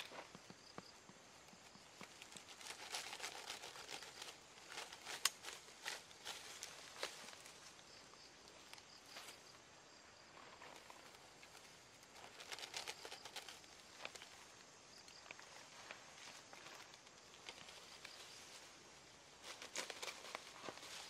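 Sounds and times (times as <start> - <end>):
dry grass rustling and crackling: 0.0 - 9.6, 10.2 - 21.0.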